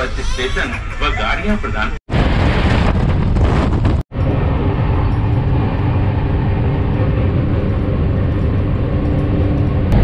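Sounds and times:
train rumble inside coach: 3.5 - 10.0.

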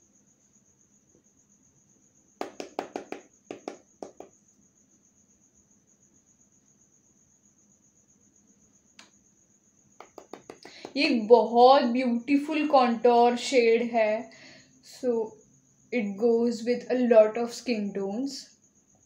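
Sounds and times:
cricket chirring: 0.0 - 19.0
makeup brush and palette clicking: 10.0 - 11.0.

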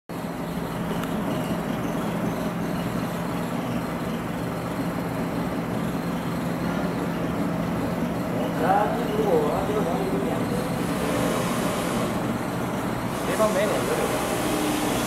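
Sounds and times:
electric motor hum: 9.6 - 15.0.

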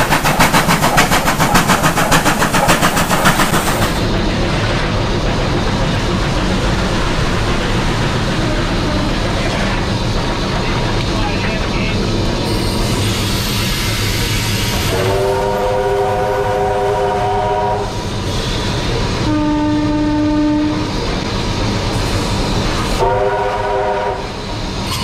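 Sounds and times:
steam locomotive running on rails: 0.0 - 25.0
chord-like train horn: 14.9 - 17.9, 19.2 - 20.9, 23.0 - 24.4.

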